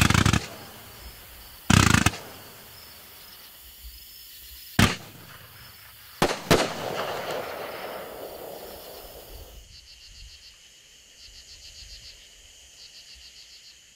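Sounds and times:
firework bangs: 0:00.0 - 0:03.2, 0:04.8 - 0:09.5
firework crackling: 0:00.0 - 0:03.2, 0:04.8 - 0:09.5
crickets chirping: 0:00.0 - 0:13.9.

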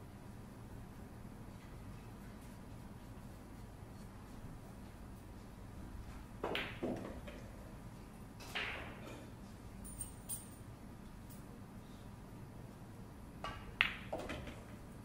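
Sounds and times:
cue tip striking cue ball: 0:06.4 - 0:07.2.

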